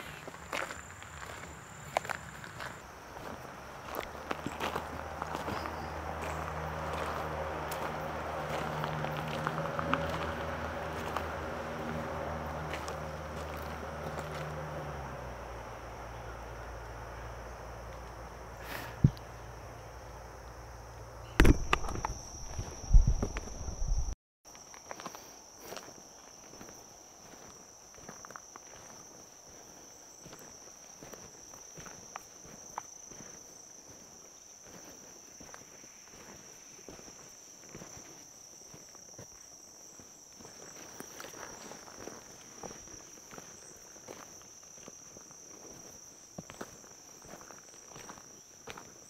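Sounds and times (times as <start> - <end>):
footsteps on woodland trail: 0.0 - 15.4, 21.3 - 49.0
high insect drone: 0.0 - 49.0
low traffic rumble: 0.4 - 24.2
insects singing: 15.8 - 24.2
single knock: 21.4 - 22.2
sharp clicks: 21.4 - 24.2.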